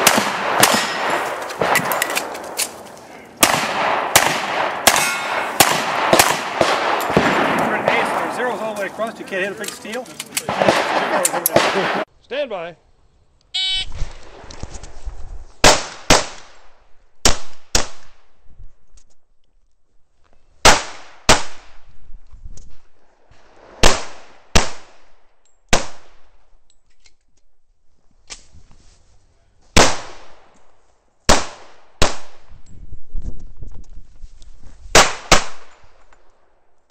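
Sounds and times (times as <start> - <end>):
pistol shots with echo: 0.0 - 2.4, 3.4 - 9.1, 10.4 - 12.1
brief beep: 13.6 - 14.0.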